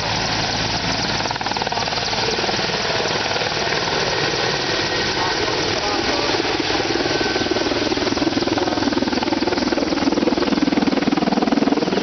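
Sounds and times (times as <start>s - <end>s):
helicopter rotor thumping: 0.0s - 12.0s
helicopter turbine noise: 0.0s - 12.0s.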